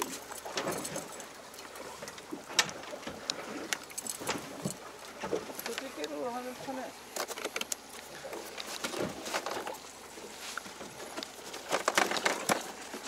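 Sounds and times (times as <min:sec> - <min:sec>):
clicks and knocks on boat: 0:00.0 - 0:06.2, 0:07.1 - 0:09.8, 0:10.5 - 0:13.0.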